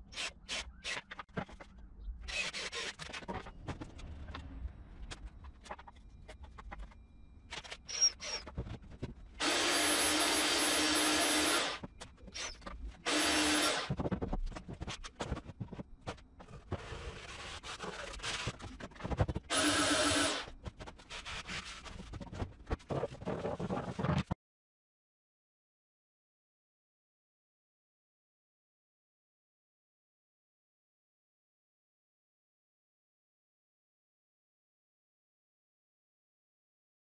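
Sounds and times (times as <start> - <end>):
power tool running: 9.4 - 11.8, 13.1 - 13.9, 19.5 - 20.5.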